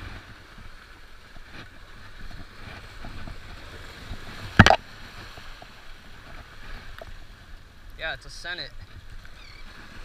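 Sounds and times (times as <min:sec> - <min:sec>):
wind rumbling on microphone: 0:00.0 - 0:08.0.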